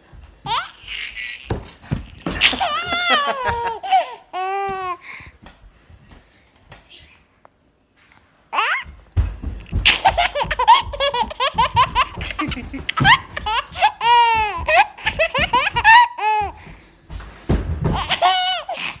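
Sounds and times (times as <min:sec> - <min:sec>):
baby laughing: 0:00.4 - 0:05.0, 0:08.5 - 0:09.0, 0:09.7 - 0:16.6, 0:17.9 - 0:19.0.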